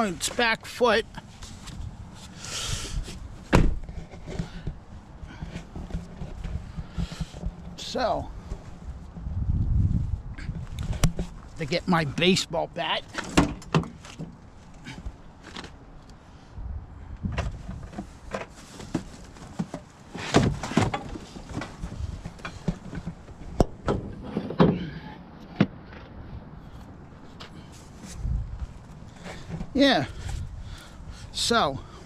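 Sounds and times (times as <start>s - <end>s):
wind rumble on microphone: 1.7s - 11.6s, 16.4s - 18.3s, 21.2s - 24.2s, 28.0s - 32.0s
rustling handling noises: 26.8s - 31.4s.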